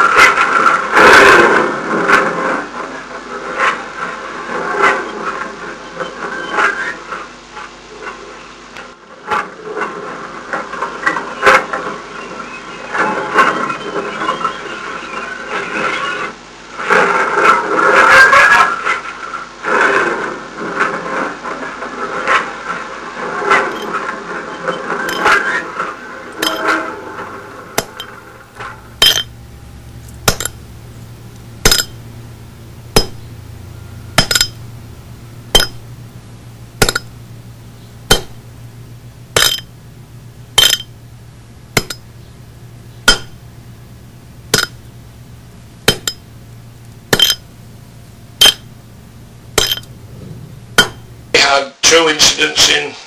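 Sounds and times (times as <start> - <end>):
low steady hum: 23.4 - 51.4
metallic clinks: 23.7 - 23.9, 24.6 - 25.4, 26.4 - 26.8, 29.0 - 29.4, 31.6 - 32.1, 34.1 - 34.7, 39.4 - 39.8, 40.6 - 41.0, 41.8 - 42.1, 45.9 - 46.2, 47.1 - 47.5, 49.6 - 50.0.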